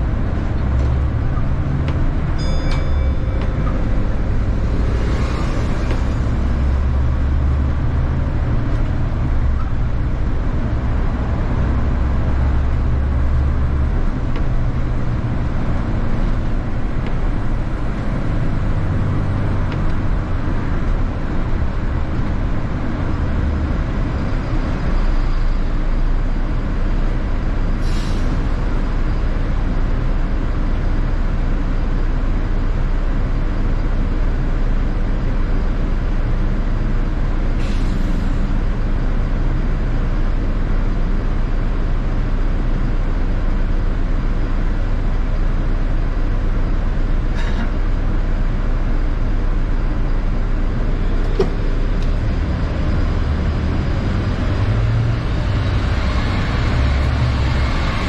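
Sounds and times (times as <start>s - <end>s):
bus engine rumbling: 0.0s - 58.0s
air brake hisses: 27.8s - 28.5s, 37.6s - 38.5s.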